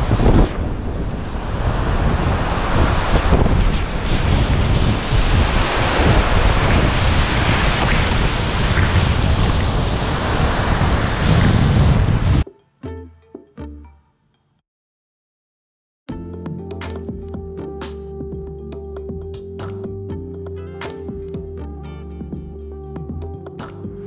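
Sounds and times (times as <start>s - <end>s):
ocean surf breaking on sand: 0.0s - 12.4s
wind buffeting microphone: 0.0s - 12.4s.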